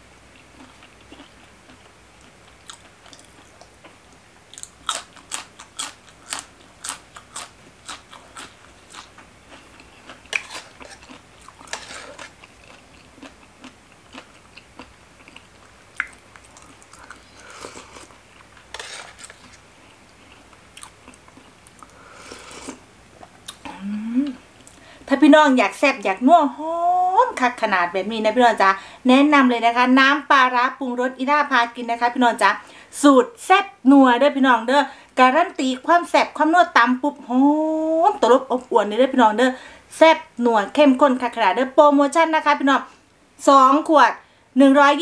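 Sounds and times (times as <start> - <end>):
crunchy chewing: 0.3 - 23.7
wet chewing: 0.4 - 23.6.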